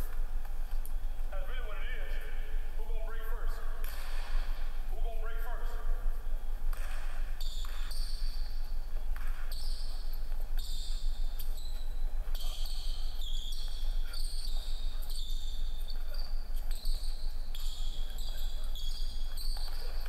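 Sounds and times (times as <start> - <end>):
sneakers squeaking: 6.0 - 20.0.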